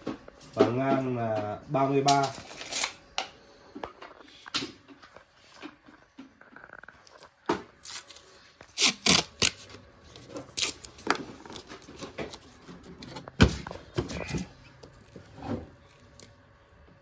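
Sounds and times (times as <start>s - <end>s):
paper tape tearing and rustling: 2.1s - 3.0s, 7.0s - 13.2s.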